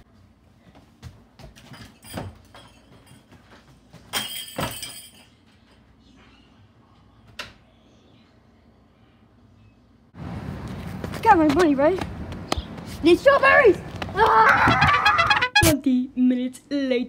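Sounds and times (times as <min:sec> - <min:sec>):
small bells jingling: 0:01.7 - 0:03.4, 0:04.1 - 0:05.8.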